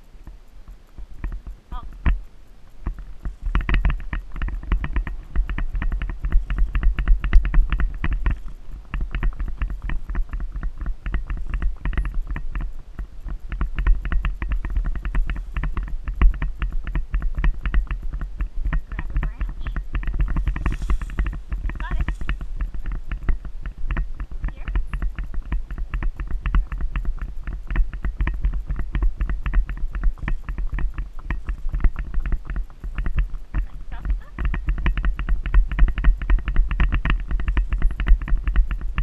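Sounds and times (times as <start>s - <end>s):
horse hooves knocking and rattling: 0.0s - 39.0s
low rumble: 0.0s - 39.0s.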